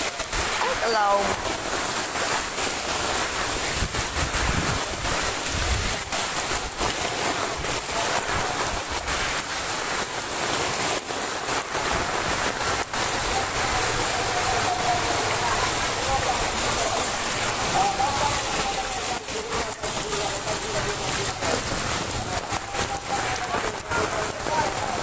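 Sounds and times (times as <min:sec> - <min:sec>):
floodwater flowing: 0:00.0 - 0:25.0
heavy rain: 0:00.0 - 0:25.0
wind buffeting microphone: 0:02.6 - 0:09.8.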